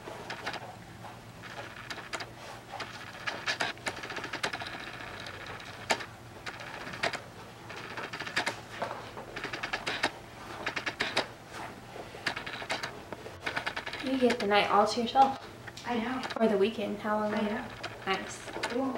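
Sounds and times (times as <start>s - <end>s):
leather creaking and crackling: 12.2s - 14.6s, 17.3s - 18.9s
sharp clicks: 12.2s - 16.5s.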